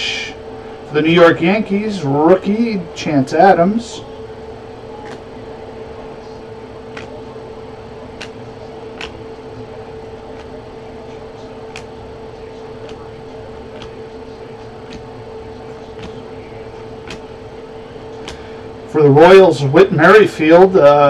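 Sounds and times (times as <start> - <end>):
steady background hum: 0.0 - 21.0
cards clicking as flipped: 17.0 - 17.2.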